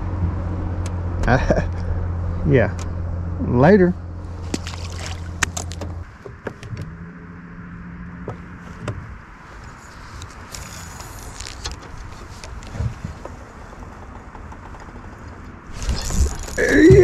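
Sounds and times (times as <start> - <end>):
fishing reel clicking and rattling: 15.7 - 16.7.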